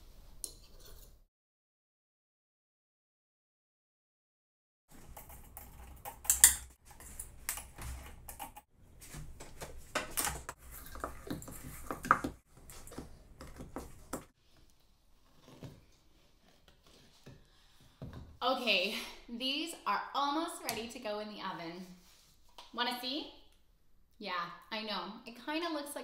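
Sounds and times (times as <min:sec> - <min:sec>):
wooden spoon stirring thick dough: 0:10.5 - 0:18.2.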